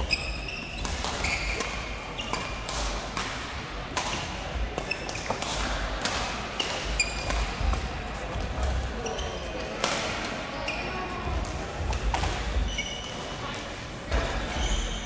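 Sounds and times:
shoe squeaks on court floor: 0:00.0 - 0:02.7, 0:04.8 - 0:05.4, 0:09.0 - 0:09.6, 0:12.6 - 0:13.5, 0:14.5 - 0:15.0
racket striking shuttlecock: 0:00.8 - 0:07.7.

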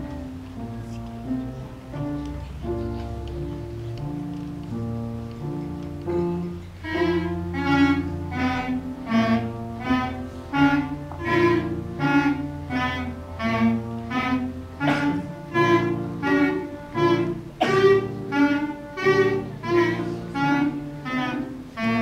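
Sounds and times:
clarinet ensemble playing: 0:06.0 - 0:22.0.

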